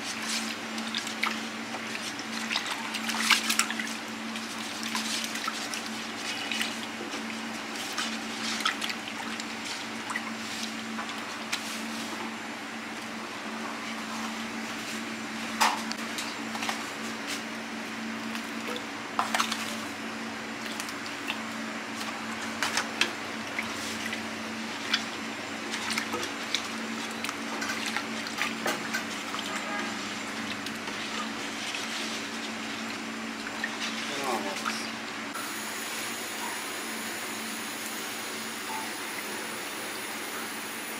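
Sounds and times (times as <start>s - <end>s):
wet sloshing of marinade: 0.0s - 12.2s, 18.2s - 35.3s
steady low hum: 0.0s - 40.9s.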